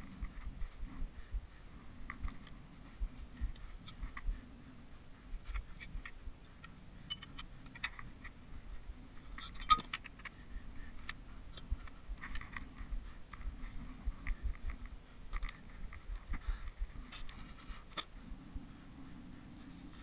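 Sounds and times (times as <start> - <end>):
tent poles clicking and clinking: 9.4 - 10.4.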